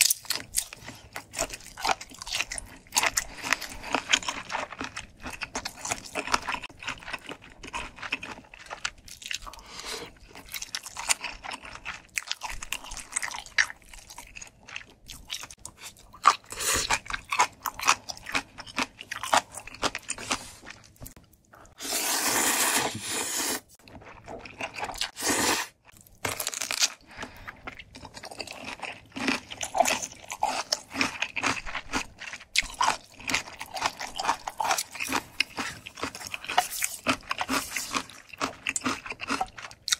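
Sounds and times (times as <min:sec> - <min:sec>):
slurping noodles: 0:21.7 - 0:23.8, 0:25.0 - 0:25.8
wet chewing with mouth clicks: 0:27.0 - 0:39.9.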